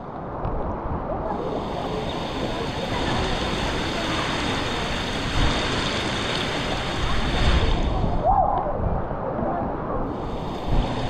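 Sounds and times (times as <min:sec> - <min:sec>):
water rushing: 0:01.2 - 0:08.7, 0:10.0 - 0:11.0.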